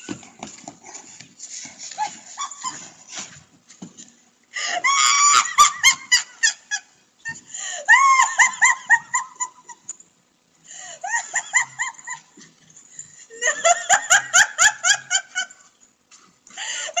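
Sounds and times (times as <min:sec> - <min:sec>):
woman shrieking with laughter: 0:01.9 - 0:02.9, 0:04.6 - 0:09.8, 0:10.8 - 0:12.3.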